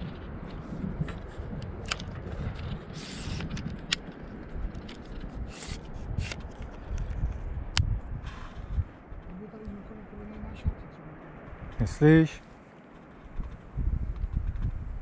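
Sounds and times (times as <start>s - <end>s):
pole shafts scraping: 0.0s - 6.9s.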